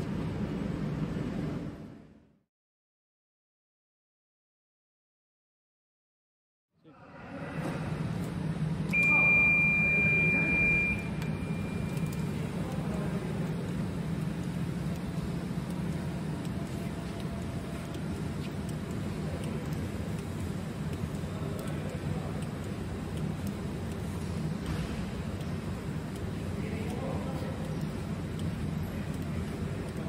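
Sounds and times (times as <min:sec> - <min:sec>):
machine humming: 0:06.9 - 0:30.0
high electronic beep: 0:08.9 - 0:12.2.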